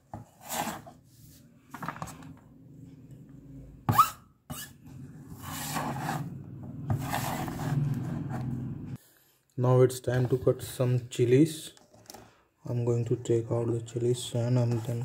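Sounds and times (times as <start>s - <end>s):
cleaver scraping cutting board: 5.3s - 8.4s.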